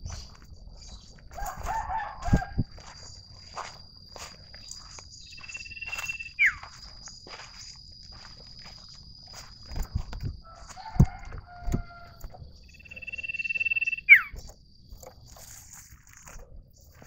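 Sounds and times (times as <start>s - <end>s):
bird whistling: 5.2s - 6.7s, 12.7s - 14.4s
bird hopping thumps: 9.3s - 12.6s.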